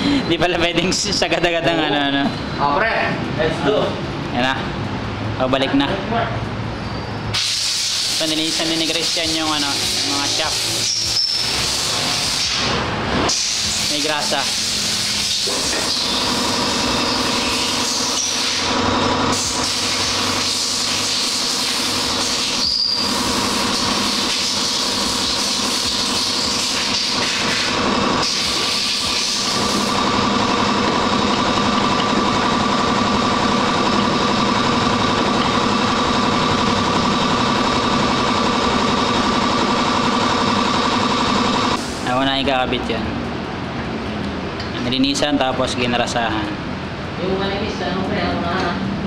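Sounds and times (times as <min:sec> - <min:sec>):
machine humming: 0:14.0 - 0:42.1.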